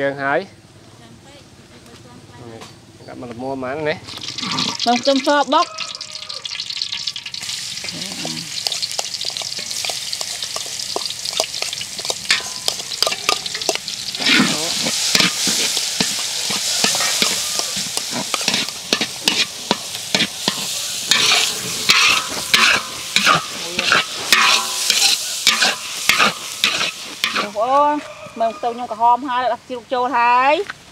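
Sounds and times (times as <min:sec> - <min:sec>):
garlic sizzling in hot oil: 0:04.0 - 0:29.4
metal spatula scraping a wok: 0:08.5 - 0:27.8.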